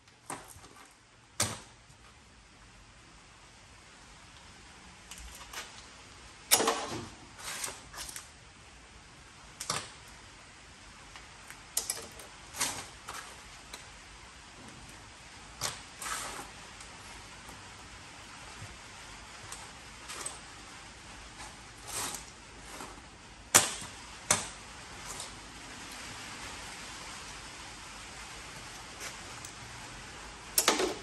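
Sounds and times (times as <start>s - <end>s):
scrap metal clinking into bins: 6.5s - 8.2s, 19.5s - 20.7s.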